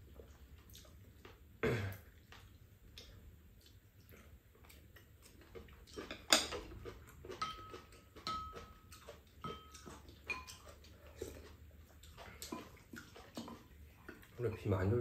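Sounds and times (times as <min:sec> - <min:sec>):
chewing and lip-smacking: 0:00.0 - 0:01.4, 0:02.0 - 0:14.6
utensils clinking on ceramic bowls: 0:05.9 - 0:10.8.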